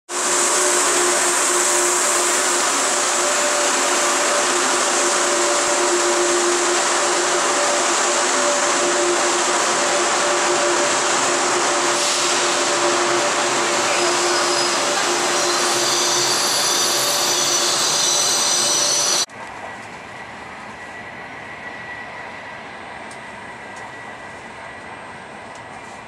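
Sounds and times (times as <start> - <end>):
train high-pitched whines: 0.1 - 26.0
train rumble and hiss: 0.1 - 26.0
train rushing inside carriage: 0.1 - 26.0.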